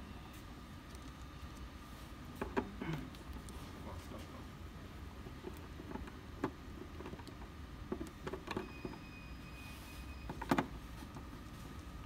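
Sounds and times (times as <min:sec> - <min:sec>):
faint high whine: 0:00.0 - 0:02.2, 0:08.6 - 0:10.6.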